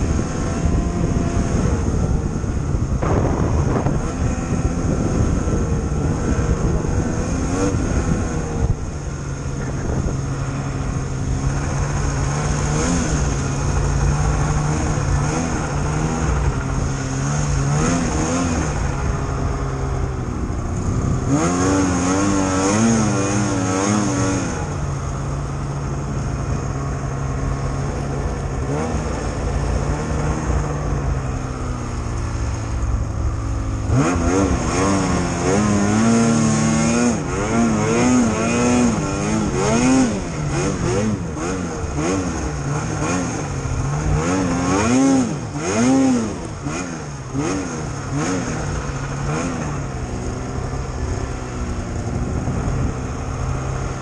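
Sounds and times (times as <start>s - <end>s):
snowmobile engine droning: 0.0s - 54.0s.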